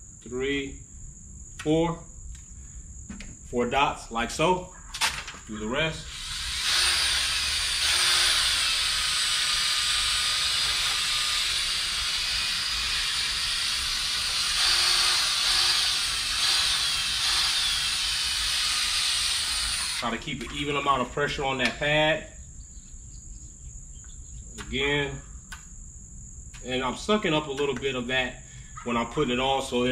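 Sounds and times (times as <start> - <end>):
cordless drill motor whine: 6.0 - 20.1.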